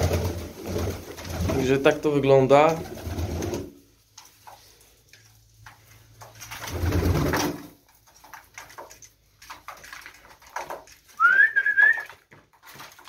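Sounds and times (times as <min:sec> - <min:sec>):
high whistle-like bird call: 0:11.2 - 0:12.1.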